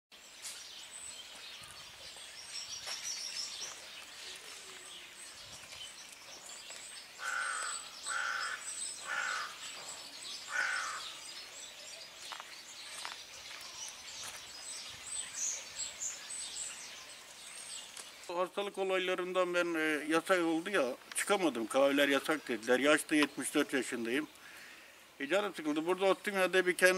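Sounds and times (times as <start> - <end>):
small birds chirping: 0.1 - 26.9
crow cawing: 7.2 - 9.6, 10.5 - 11.2.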